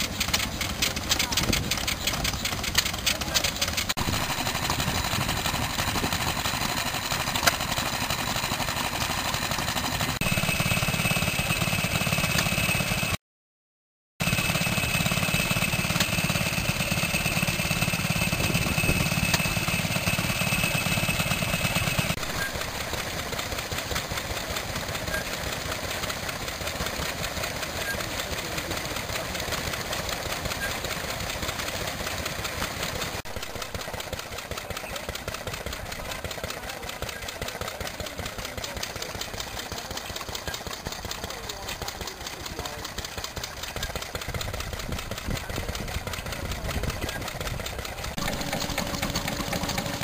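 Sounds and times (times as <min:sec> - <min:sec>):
single-cylinder engine running: 0:00.0 - 0:13.2, 0:14.2 - 0:50.0
stationary engines knocking: 0:00.0 - 0:13.2, 0:14.2 - 0:50.0
generator low hum and whine: 0:00.2 - 0:13.1, 0:47.0 - 0:50.0.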